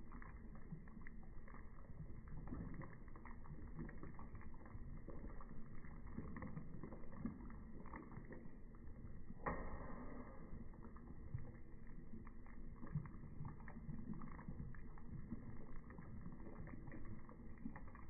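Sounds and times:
liquid sloshing in a pot: 0.2 - 8.6.

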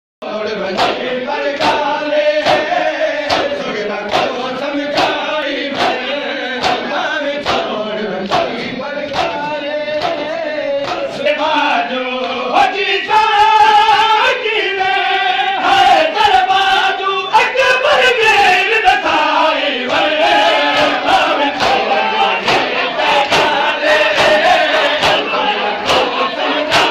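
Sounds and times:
crowd of men chanting: 0.2 - 26.9
hands slapping bare chests: 0.8 - 1.0, 1.6 - 5.2, 5.8 - 6.0, 6.6 - 9.4, 10.0 - 11.1, 21.5 - 26.1.

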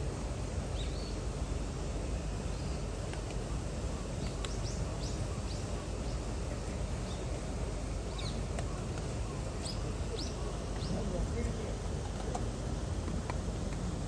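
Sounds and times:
outdoor background noise: 0.0 - 14.0
small birds chirping: 0.6 - 1.3, 2.0 - 12.5.

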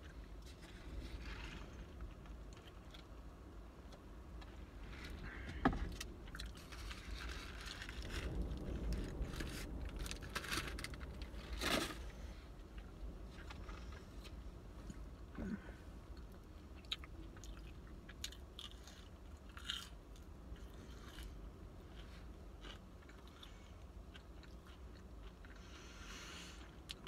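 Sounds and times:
low steady rumble: 0.0 - 27.0
foil wrapper crinkling: 6.5 - 12.2
close chewing: 16.1 - 27.0.

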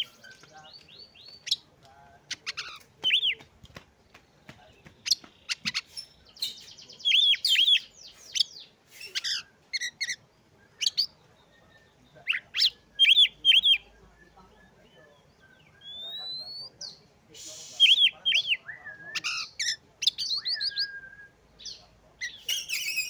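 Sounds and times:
bird singing whistles and chirps: 5.1 - 23.0.

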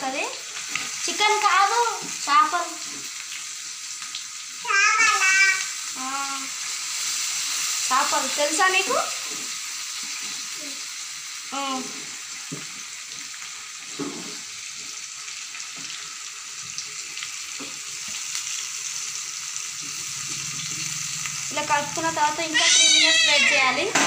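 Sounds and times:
fish sizzling in hot oil: 0.0 - 24.0.

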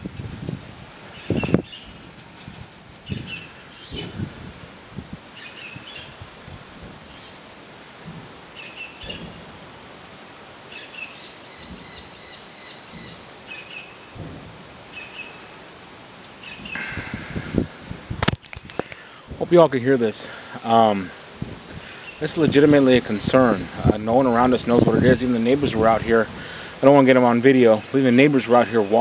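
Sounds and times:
steady rain hiss: 0.0 - 29.0
bird chirping: 1.1 - 2.0, 10.7 - 14.1, 14.9 - 15.5
deep rhythmic booms: 14.1 - 14.8.

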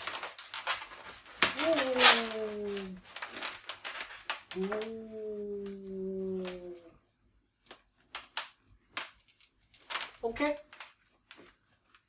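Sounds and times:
balloons rubbing and squeaking: 0.0 - 6.8.

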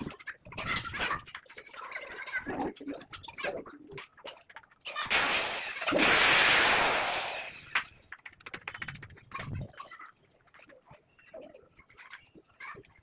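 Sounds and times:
handheld power tool running: 5.1 - 7.9.

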